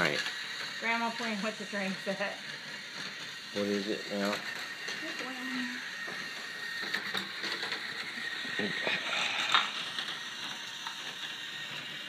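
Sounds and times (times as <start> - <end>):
toy train motor whirring: 0.0 - 12.0.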